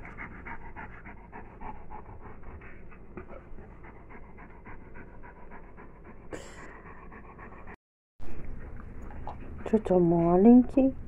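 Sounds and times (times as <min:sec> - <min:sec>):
dog panting: 0:00.0 - 0:07.8.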